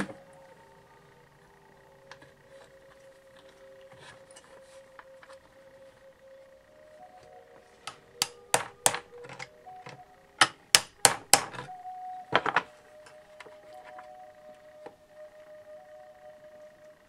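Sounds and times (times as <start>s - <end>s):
hammer striking wood: 10.8s - 11.6s.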